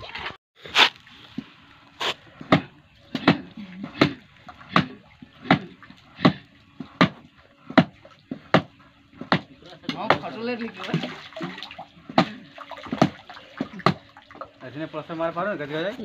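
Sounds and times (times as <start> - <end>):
trowel slapping wet plaster: 0.0 - 1.0.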